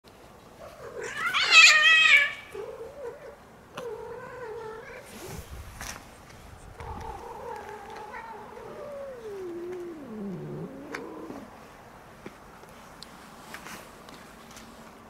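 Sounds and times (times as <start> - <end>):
cats caterwauling: 0.7 - 5.4, 6.8 - 11.6.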